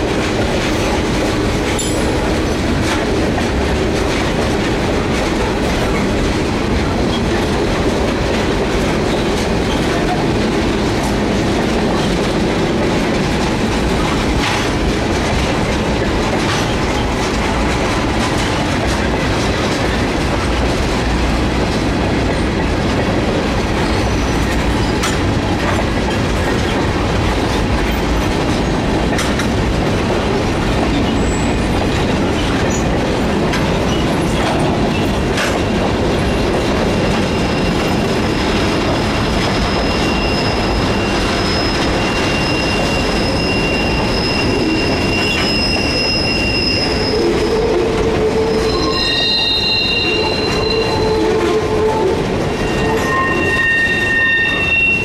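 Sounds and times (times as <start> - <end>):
train wheels rumbling on rails: 0.0 - 55.0
high-pitched wheel squeal: 39.5 - 55.0.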